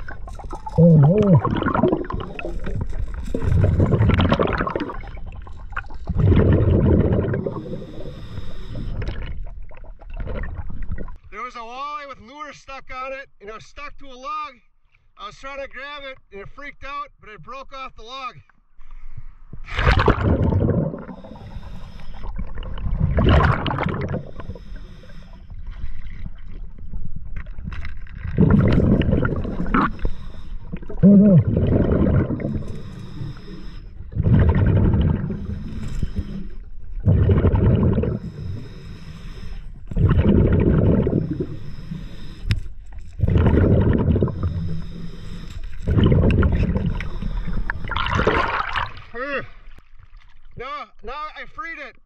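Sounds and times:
diver exhaling bubbles underwater: 0.0s - 11.2s, 19.6s - 26.8s, 28.2s - 42.3s, 43.0s - 45.2s, 45.8s - 49.7s.

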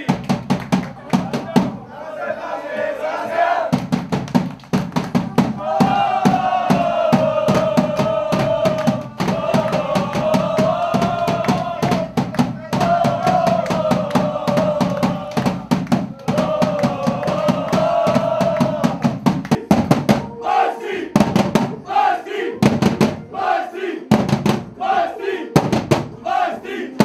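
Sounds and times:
men shouting a chant: 5.2s - 19.2s, 20.3s - 21.2s
men singing together: 5.6s - 19.3s, 24.7s - 27.0s.

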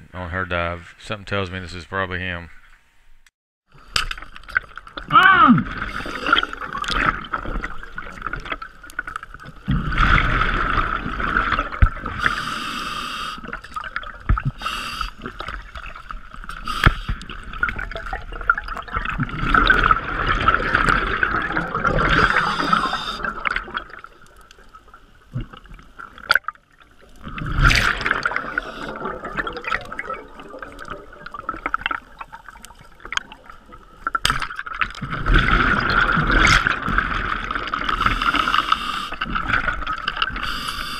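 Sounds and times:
gurgling exhaled bubbles: 4.5s - 12.6s, 13.4s - 26.4s, 27.0s - 40.4s
hissing regulator inhalations: 12.2s - 13.5s, 22.3s - 23.3s, 38.0s - 39.2s, 40.4s - 40.9s.

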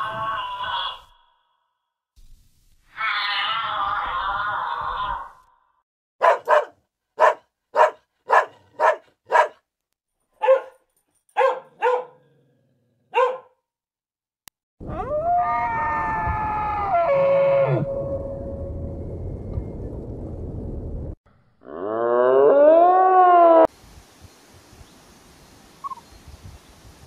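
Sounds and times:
long animal call: 2.9s - 5.4s
dog barking: 6.2s - 9.6s, 10.4s - 10.8s, 11.4s - 12.3s, 13.1s - 13.6s.

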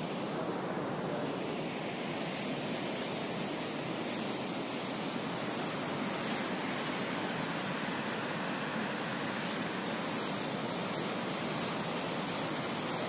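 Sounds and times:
steady rushing noise: 0.0s - 13.0s.

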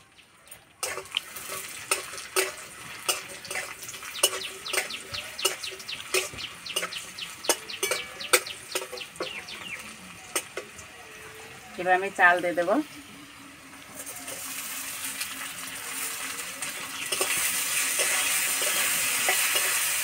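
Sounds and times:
food frying crackling in oil: 0.0s - 20.0s
metal spatula scraping a pan: 0.8s - 9.3s, 13.9s - 20.0s.

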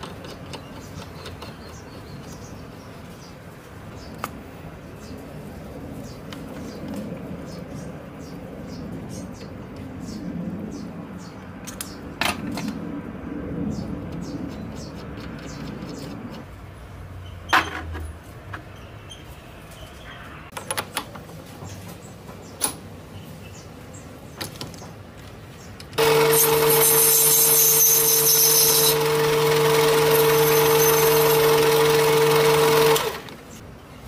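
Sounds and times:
lathe running with a whine: 26.0s - 33.4s.

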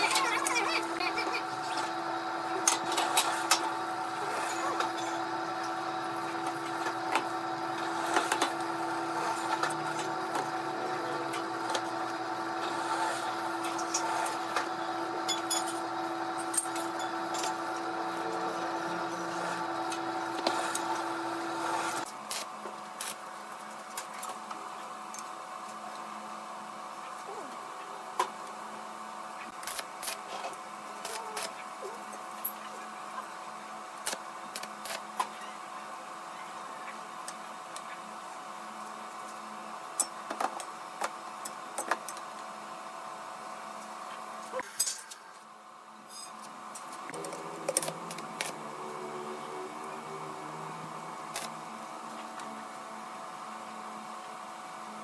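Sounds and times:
electric motor humming: 0.0s - 22.1s, 47.0s - 52.6s.

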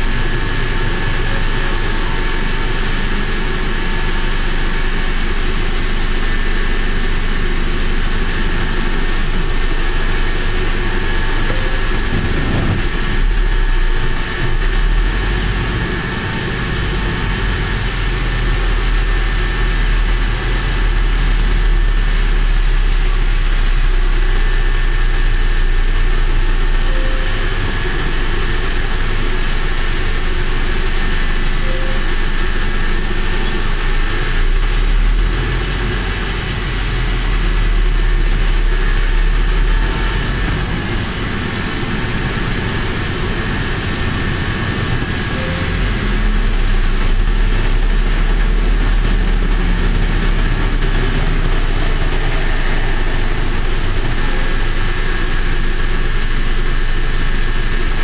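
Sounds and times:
engine and tyre noise: 0.0s - 58.0s
wind rumble on microphone: 12.0s - 17.7s.

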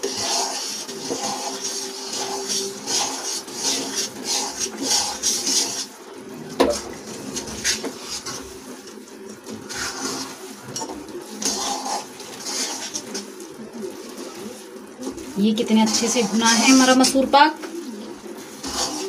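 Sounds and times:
spatula scraping metal pan: 0.0s - 6.0s, 9.6s - 13.3s, 15.6s - 17.3s, 18.5s - 19.0s.

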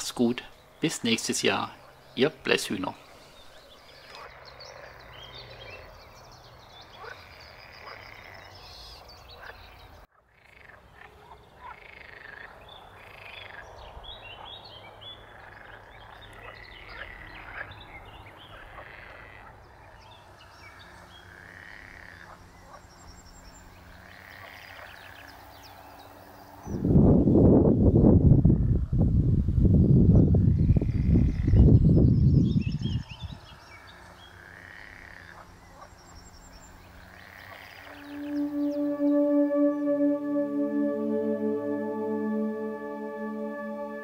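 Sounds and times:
frogs croaking: 3.6s - 14.5s, 15.2s - 19.8s, 20.7s - 22.8s, 33.8s - 38.2s.

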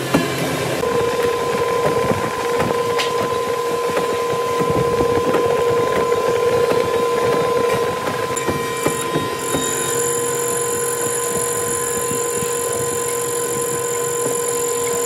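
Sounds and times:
drilling machine whining: 0.8s - 15.0s.

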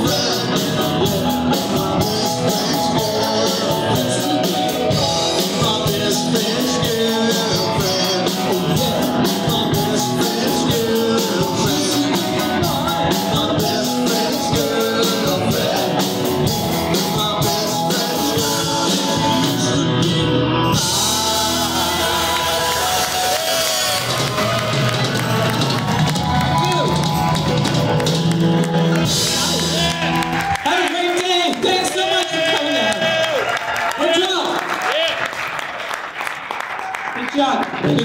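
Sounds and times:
person singing into microphone: 0.0s - 24.0s
drum kit: 0.0s - 33.2s
electric guitars: 0.0s - 33.4s
bass guitar: 0.0s - 33.5s.

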